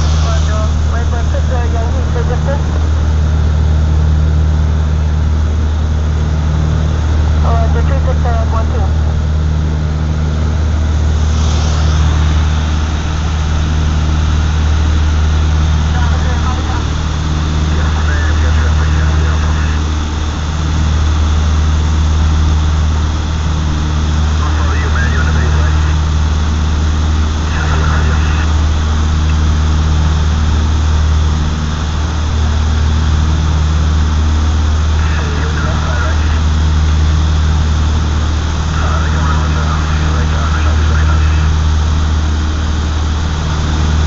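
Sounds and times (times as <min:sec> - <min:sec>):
propeller engine droning: 0:00.0 - 0:44.0
rush of air: 0:10.7 - 0:15.8.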